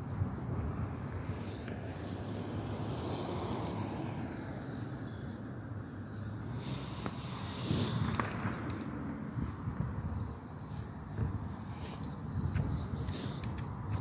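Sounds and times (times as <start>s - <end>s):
traffic rumble: 0.0s - 14.0s
wind on microphone: 7.0s - 14.0s.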